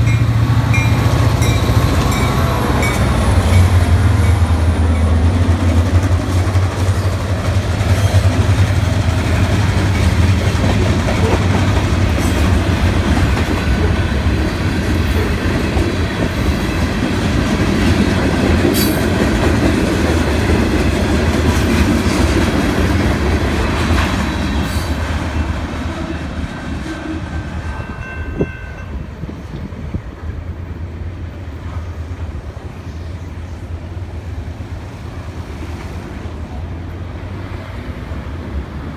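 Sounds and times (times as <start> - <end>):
train wheels clattering on rails: 0.0 - 30.8
diesel locomotive engines humming: 0.0 - 38.9.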